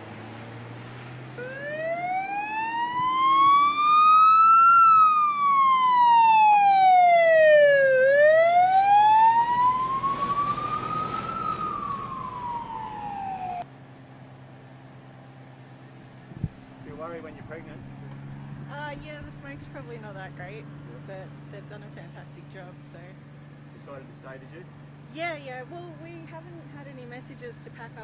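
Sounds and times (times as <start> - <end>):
fire truck siren wailing: 0.2 - 13.7.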